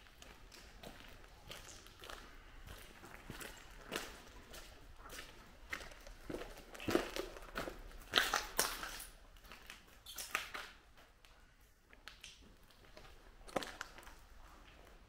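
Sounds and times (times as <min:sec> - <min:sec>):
footsteps crunching on debris: 0:00.0 - 0:11.2.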